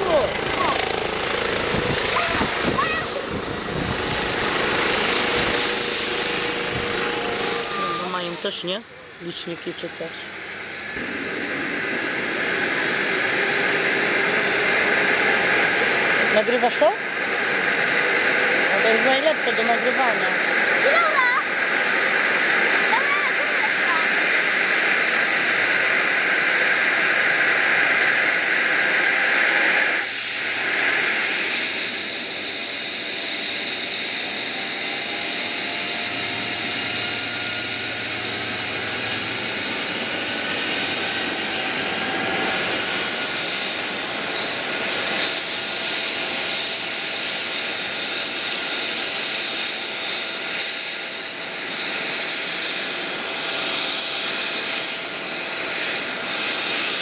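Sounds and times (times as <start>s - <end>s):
helicopter engine whine and rotor: 0.0s - 57.0s
faint rising whistling tones: 5.5s - 14.4s.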